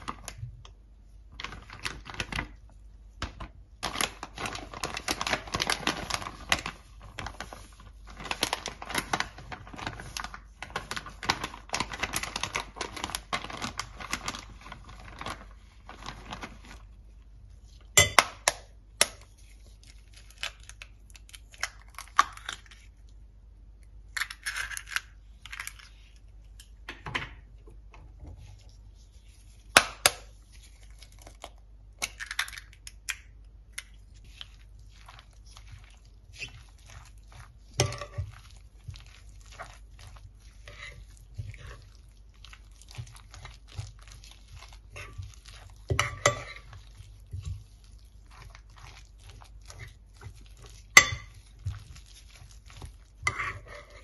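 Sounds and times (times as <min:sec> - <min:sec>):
egg shells crackling: 0:31.0 - 0:53.2.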